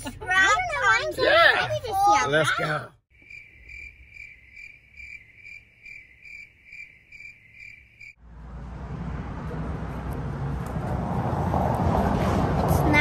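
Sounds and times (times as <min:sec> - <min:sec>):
cricket chirping: 0:03.1 - 0:08.2
outdoor rushing noise: 0:08.1 - 0:13.0.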